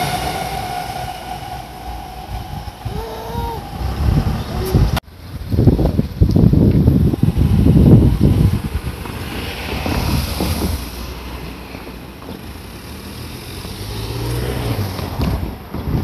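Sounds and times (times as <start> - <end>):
electric train running: 0.0 - 5.0, 6.2 - 13.2
wind buffeting microphone: 0.0 - 12.0, 14.7 - 16.0.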